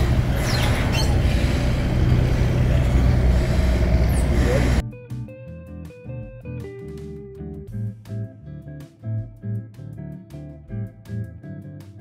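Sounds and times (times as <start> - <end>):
boat engine low rumble: 0.0 - 4.8.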